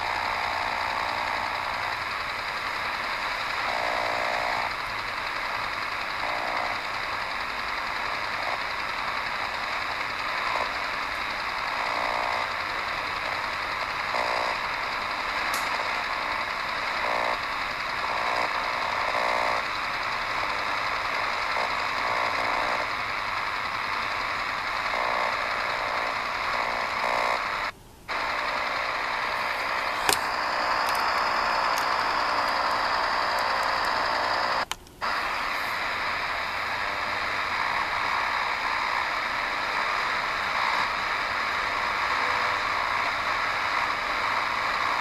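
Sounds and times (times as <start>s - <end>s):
faint rapid pulsing: 0.0s - 45.0s
radio hiss and static: 0.0s - 45.0s
sharp click: 15.4s - 15.9s, 30.0s - 34.0s.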